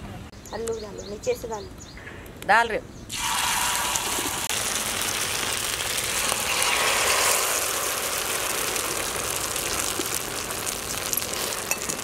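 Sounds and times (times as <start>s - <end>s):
batter sizzling on hot pan: 3.1s - 12.0s.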